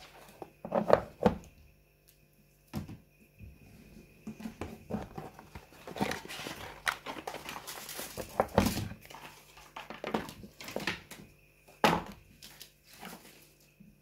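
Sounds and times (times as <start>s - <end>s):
cardboard packaging rustling: 4.3s - 11.2s, 11.9s - 13.8s.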